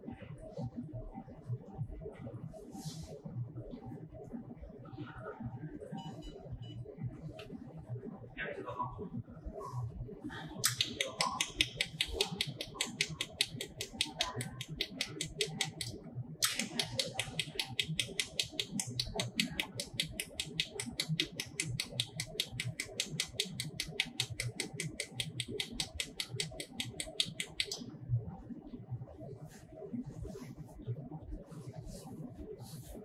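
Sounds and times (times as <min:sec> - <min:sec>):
laser welder clicking: 0:10.6 - 0:27.8.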